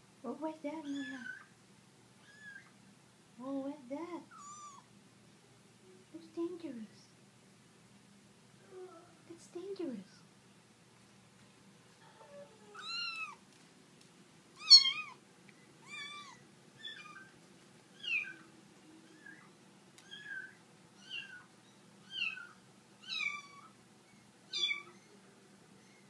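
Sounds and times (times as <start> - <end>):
kitten meowing: 2.2 - 2.7, 4.3 - 4.9, 12.7 - 13.4, 14.6 - 15.2, 15.8 - 17.3, 18.0 - 18.4, 19.0 - 23.7, 24.5 - 25.1.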